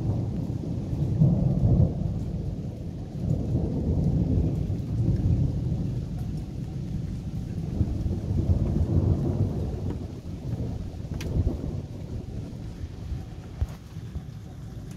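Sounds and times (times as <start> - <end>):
thunder rumbling: 0.0 - 14.9.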